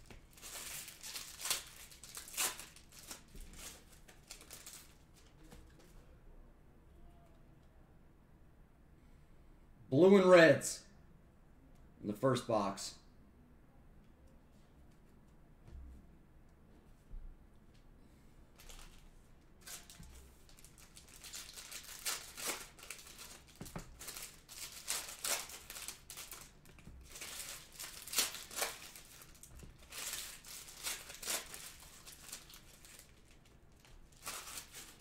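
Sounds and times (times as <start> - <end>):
foil wrappers tearing and crinkling: 0.0 - 5.0, 18.6 - 19.0, 19.6 - 35.0.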